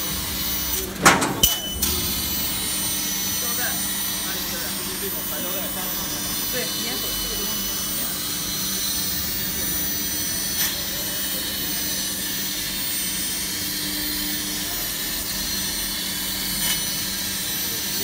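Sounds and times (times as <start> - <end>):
low machine hum: 0.0 - 11.2.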